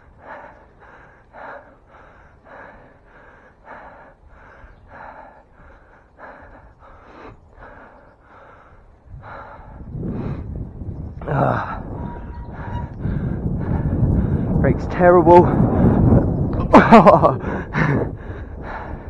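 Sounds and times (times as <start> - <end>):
man breathing hard: 0.0 - 14.6, 15.5 - 16.3, 17.4 - 19.0
low steady rumble: 9.0 - 18.9.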